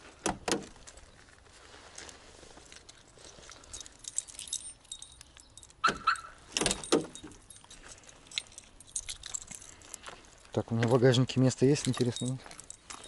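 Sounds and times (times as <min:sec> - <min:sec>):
car keys jingling: 0:02.7 - 0:13.0
key clinking against lock: 0:02.9 - 0:13.0.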